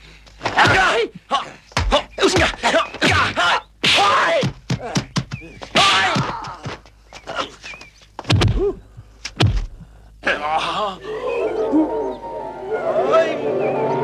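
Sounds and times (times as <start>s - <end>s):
fighters shouting and grunting: 0.4s - 7.6s
heavy punch impacts: 8.2s - 9.9s
music: 11.9s - 14.0s.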